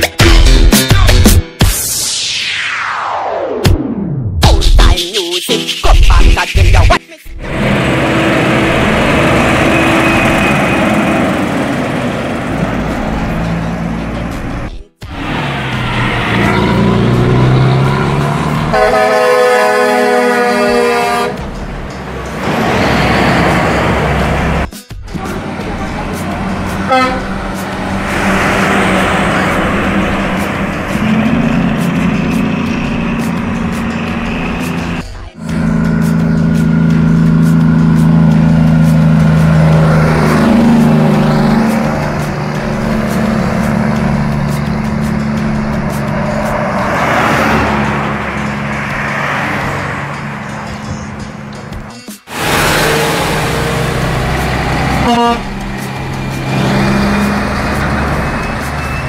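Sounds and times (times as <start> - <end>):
diesel trucks passing: 5.7 - 59.0
truck air horn chord: 18.7 - 21.7, 25.2 - 44.9, 52.3 - 54.0, 54.9 - 59.0.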